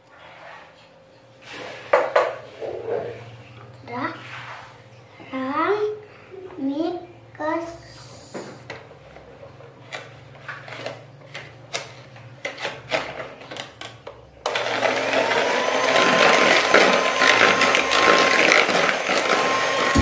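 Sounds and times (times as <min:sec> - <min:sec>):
hand mixer motor whining: 0:14.5 - 0:20.0.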